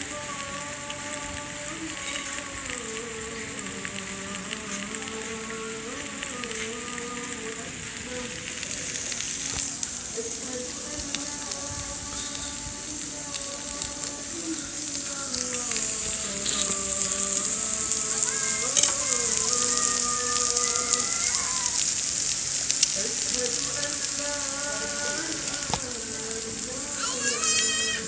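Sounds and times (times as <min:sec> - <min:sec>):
background music: 0:00.0 - 0:28.0
meat sizzling on grill plate: 0:08.2 - 0:28.0.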